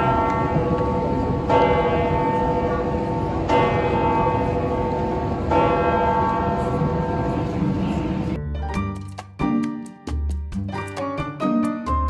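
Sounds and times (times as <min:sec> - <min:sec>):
church bell tolling: 0:00.0 - 0:08.4.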